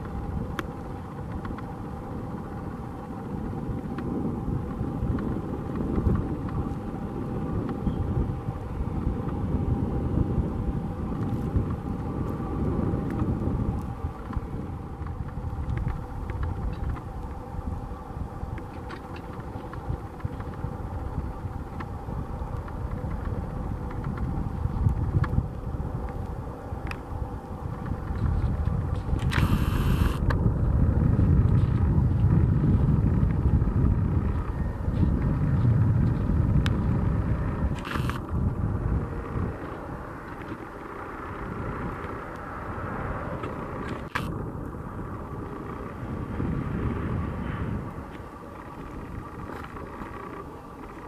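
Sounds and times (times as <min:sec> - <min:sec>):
distant airplane engine: 0:00.0 - 0:51.0
faint steady hum: 0:00.0 - 0:51.0
wind buffeting microphone: 0:00.0 - 0:51.0
sharp click: 0:29.2 - 0:30.4, 0:37.8 - 0:38.2.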